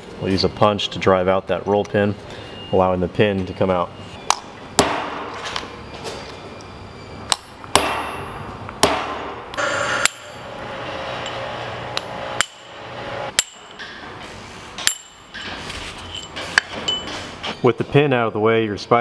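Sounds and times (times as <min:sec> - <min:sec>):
hammer striking steel punch: 0:04.2 - 0:05.4, 0:07.3 - 0:10.4, 0:12.0 - 0:14.0, 0:14.8 - 0:15.5.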